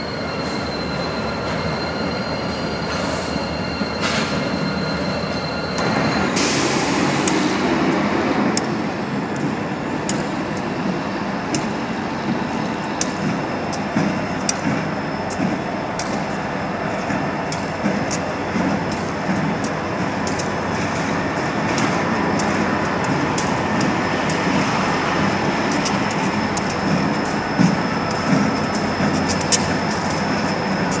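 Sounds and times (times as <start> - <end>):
diesel locomotive engines rumbling: 0.0 - 31.0
sharp clicks: 17.5 - 24.7, 25.7 - 31.0.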